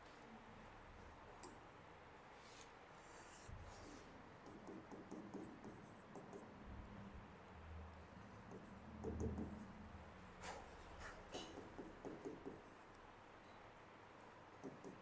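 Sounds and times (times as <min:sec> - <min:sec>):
faint scratches: 0:02.4 - 0:04.8.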